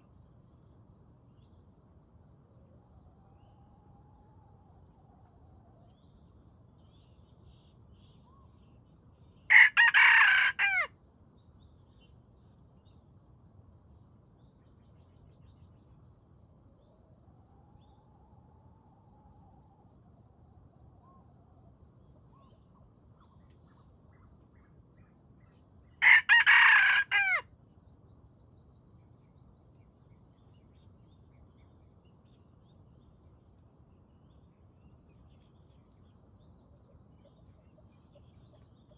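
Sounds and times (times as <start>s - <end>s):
rooster crowing: 9.5s - 10.9s, 26.0s - 27.5s.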